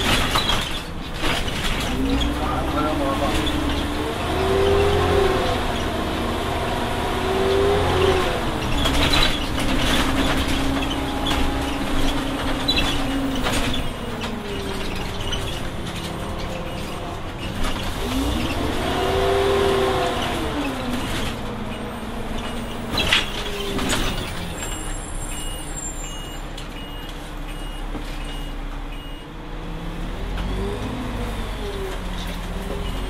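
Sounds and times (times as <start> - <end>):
bus engine and gearbox whining: 0.0 - 33.0
regular beeping: 7.5 - 29.4.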